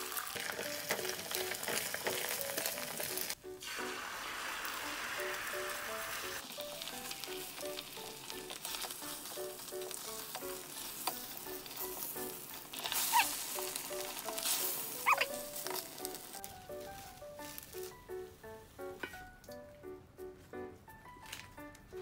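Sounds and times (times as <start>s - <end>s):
egg sizzling in oiled pan: 0.0s - 19.3s
light background music: 0.0s - 22.0s
spatula scraping a pan: 0.2s - 2.4s, 8.4s - 16.2s.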